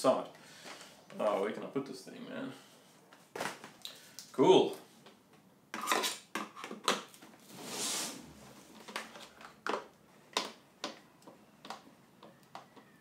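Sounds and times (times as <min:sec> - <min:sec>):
rustling swish: 0:07.4 - 0:08.7
plastic parts clicking and knocking: 0:08.8 - 0:13.0.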